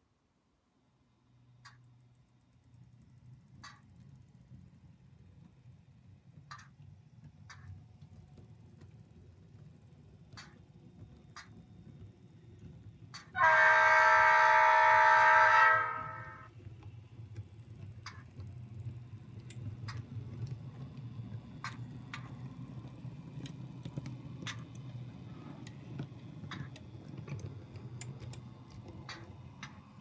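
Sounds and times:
wheels clicking over rail joints: 6.3 - 13.4, 16.5 - 30.0
diesel air horn through small speaker: 13.4 - 16.5.

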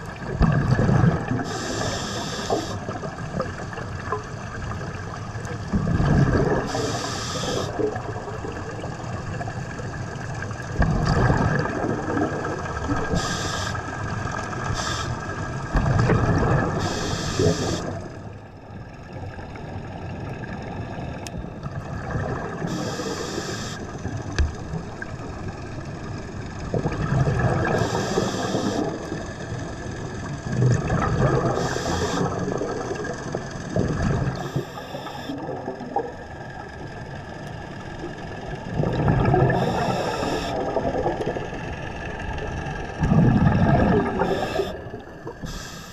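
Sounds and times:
diver breathing through regulator: 1.4 - 2.9, 6.6 - 7.8, 13.0 - 13.9, 14.6 - 15.4, 16.7 - 18.0, 22.7 - 24.0, 27.6 - 29.0, 31.4 - 32.5, 34.4 - 35.5, 39.4 - 40.7, 43.1 - 45.9
bubbling exhalations: 5.7 - 8.6, 10.8 - 13.4, 30.5 - 36.1, 38.7 - 41.6, 42.9 - 45.9
faint steady tone: 34.3 - 38.5, 39.5 - 40.8.

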